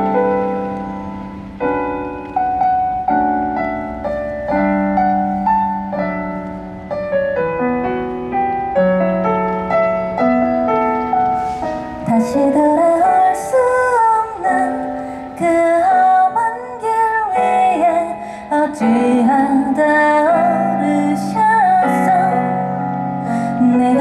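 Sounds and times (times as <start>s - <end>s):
electric piano playing chords: 0.0s - 24.0s.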